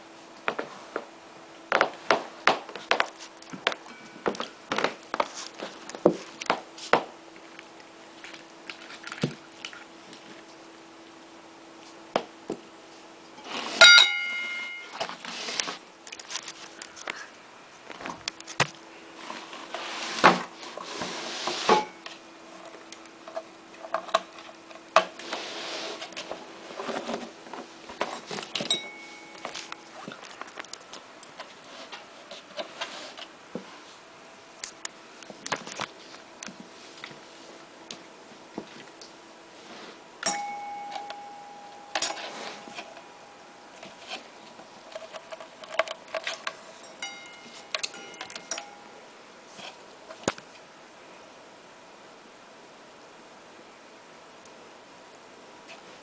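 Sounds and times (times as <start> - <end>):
faint steady hum: 0.0 - 56.0
alarm bell gong ringing: 3.8 - 4.4, 13.8 - 15.0, 28.6 - 29.8, 40.2 - 43.6, 46.8 - 49.0
faint metallic ping: 13.8 - 14.9, 40.2 - 42.3.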